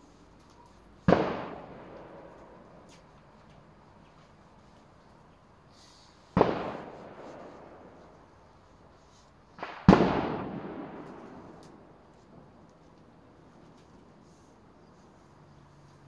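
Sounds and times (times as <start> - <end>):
loud sharp bangs: 1.0 - 2.6, 6.3 - 7.9, 9.6 - 12.0.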